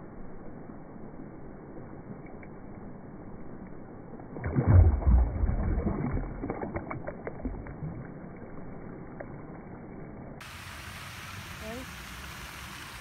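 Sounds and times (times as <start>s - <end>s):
fish splashing in shallow water: 4.3s - 11.2s.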